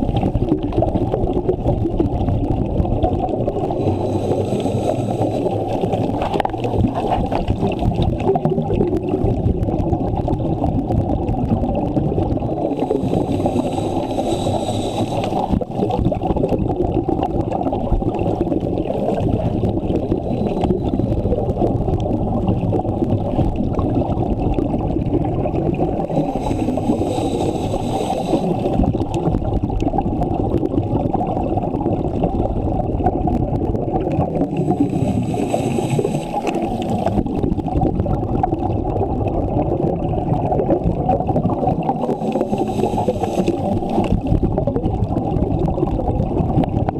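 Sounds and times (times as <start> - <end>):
underwater water and bubbles rumble: 0.0 - 46.9
hissing breaths through regulator: 3.6 - 7.8, 12.7 - 15.7, 20.1 - 21.3, 26.0 - 28.9, 34.5 - 37.2, 42.0 - 44.2.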